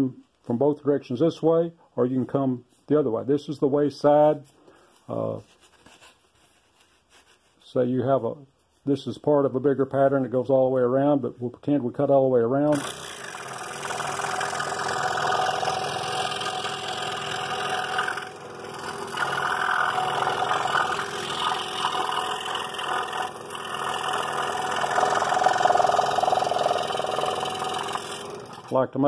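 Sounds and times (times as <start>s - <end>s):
scroll saw cutting wood: 12.7s - 28.8s.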